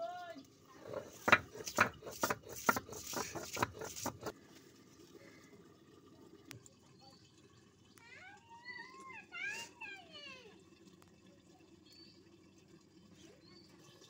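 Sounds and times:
stone pestle crushing onion: 0.8 - 4.3.

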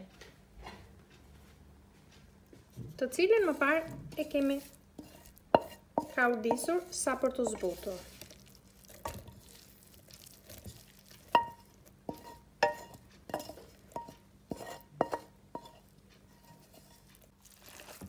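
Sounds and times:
utensil knocking on metal pan: 5.5 - 7.8.

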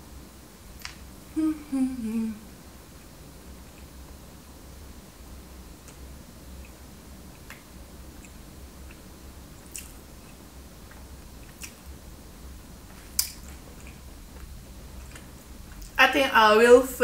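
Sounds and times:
low steady hum: 0.0 - 17.0
person chewing: 8.2 - 11.9, 12.9 - 16.0.

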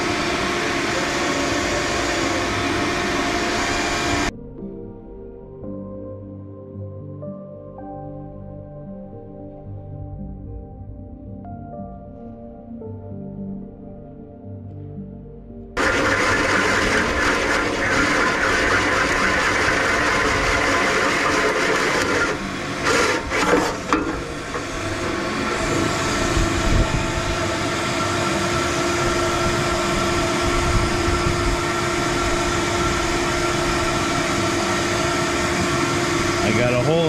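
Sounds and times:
drill hole saw cutting metal: 0.0 - 4.3, 15.8 - 37.0.

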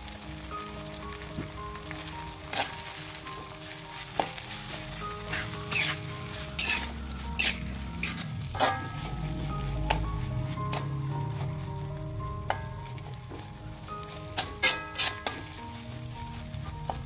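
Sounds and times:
vegetables sizzling in a wok: 0.0 - 17.0
metal spatula scraping a wok: 4.1 - 11.7, 12.5 - 15.8.

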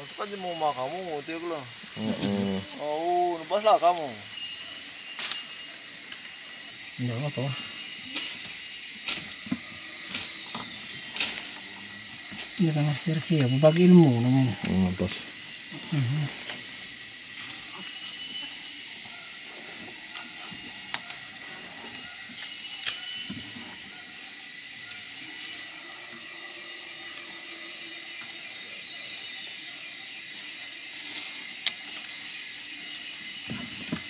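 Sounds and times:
insects droning: 0.0 - 34.0.

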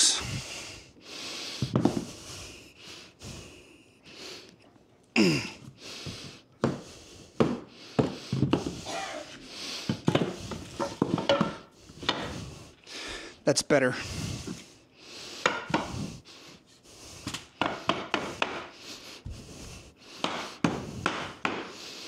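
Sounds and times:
person breathing: 0.0 - 22.0
mallet knocking floor planks: 9.9 - 12.3, 17.3 - 18.7, 20.2 - 21.7.

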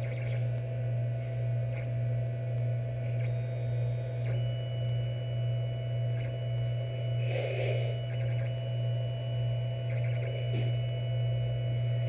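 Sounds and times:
printer low hum: 0.0 - 12.0
high-pitched motor whines: 1.5 - 12.0.

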